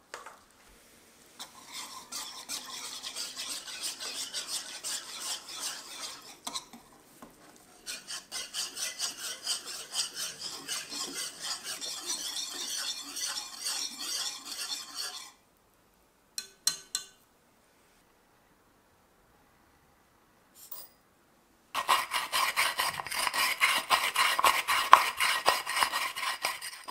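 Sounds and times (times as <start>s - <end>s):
metal whisk scraping a pan: 1.4s - 6.8s, 7.7s - 15.4s, 21.8s - 26.9s.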